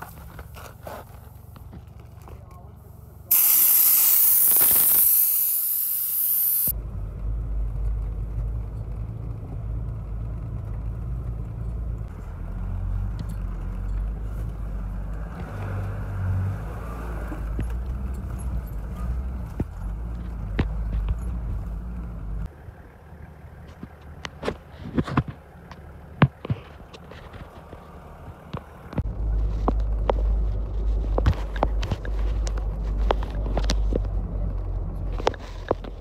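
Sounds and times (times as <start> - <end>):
car engine and road rumble: 0.0 - 36.0
air hissing out of tyre: 3.3 - 6.7.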